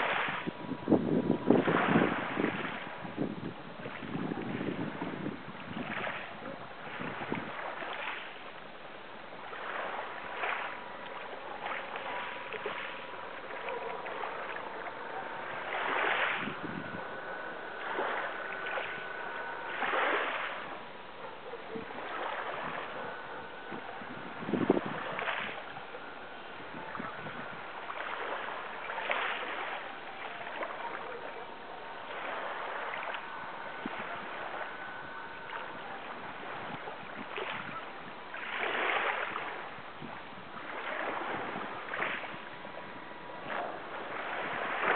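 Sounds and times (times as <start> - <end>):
faint high hum: 0.0 - 44.9
sea water splashing and sloshing: 0.0 - 44.9.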